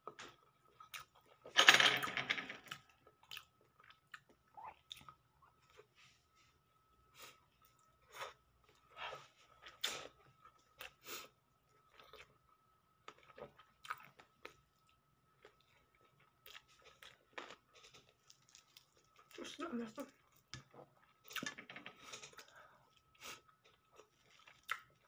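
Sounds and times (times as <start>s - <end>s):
chewing and lip-smacking: 2.7s - 5.9s, 13.1s - 19.4s, 22.2s - 25.0s.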